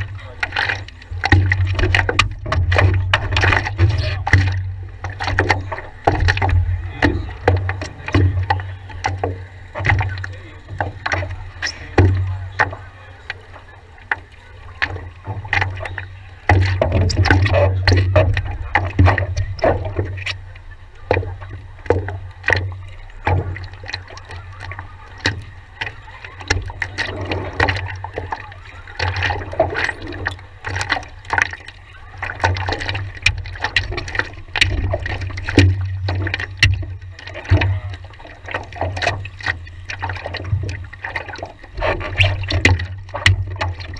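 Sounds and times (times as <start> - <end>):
paddle strokes splashing water: 0.0 - 43.9
low rumble: 0.8 - 13.6.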